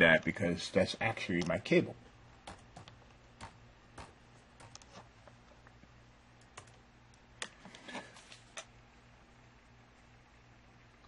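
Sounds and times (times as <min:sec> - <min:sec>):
computer keyboard typing clicks: 0:06.4 - 0:06.8.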